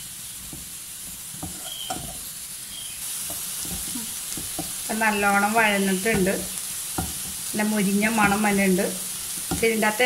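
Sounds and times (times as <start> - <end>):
onions sizzling in a pan: 0.0 - 10.0
spatula scraping a pan: 1.1 - 2.3.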